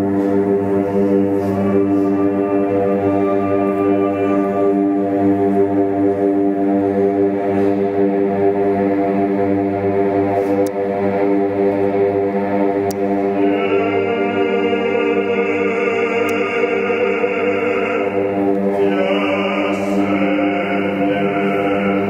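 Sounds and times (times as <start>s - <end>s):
chant-like singing: 0.0s - 5.9s, 13.2s - 22.0s
steady drone: 0.0s - 22.0s.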